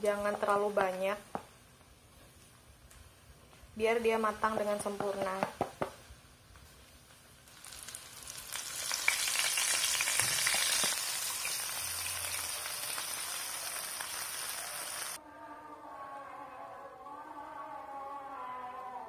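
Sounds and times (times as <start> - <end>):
oil sizzling and bubbling: 0.0 - 15.2.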